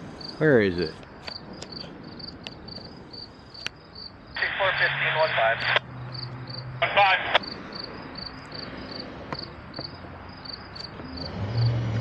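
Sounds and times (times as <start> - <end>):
crickets chirping: 0.0 - 12.0
radio click: 4.4 - 5.9, 6.8 - 7.5
scanner radio hiss with garbled voice: 4.4 - 5.9, 6.8 - 7.6.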